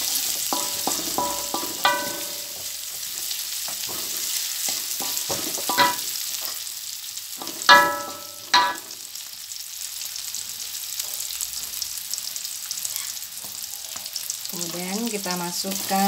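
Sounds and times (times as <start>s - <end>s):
shallots sizzling in hot oil: 0.0s - 16.0s
spatula knocking on metal wok: 0.4s - 2.8s, 5.0s - 6.0s, 7.4s - 8.9s.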